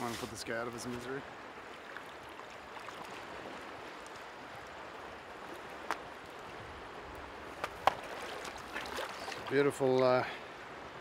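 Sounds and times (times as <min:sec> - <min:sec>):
river flowing over stones: 0:00.0 - 0:11.0.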